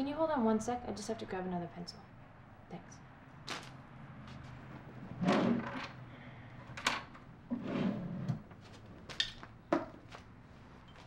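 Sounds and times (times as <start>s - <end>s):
drawer scraping and rustling: 5.0s - 6.0s, 7.5s - 9.0s.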